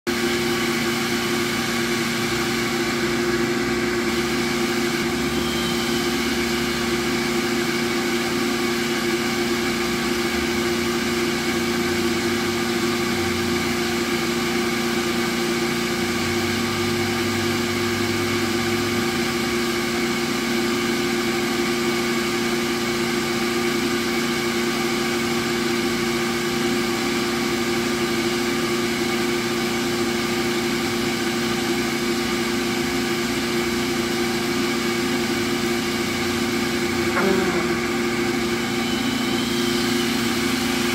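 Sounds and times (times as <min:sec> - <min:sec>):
machine hum with held tones: 0:00.1 - 0:40.9.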